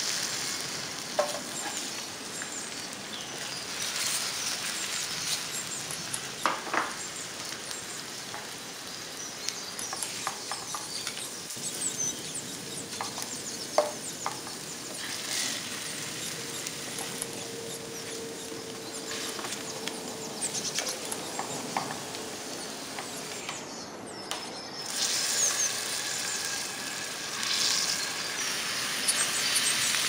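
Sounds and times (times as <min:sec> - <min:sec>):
potatoes sizzling in oil: 0:00.0 - 0:23.8, 0:24.8 - 0:30.0.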